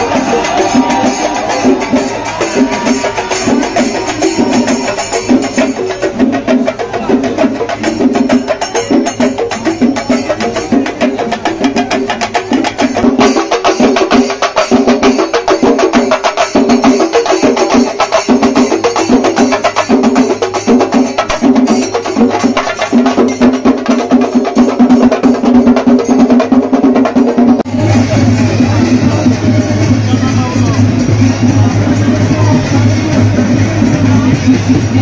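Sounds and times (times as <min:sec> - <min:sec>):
percussion ensemble drumming: 0:00.0 - 0:35.0.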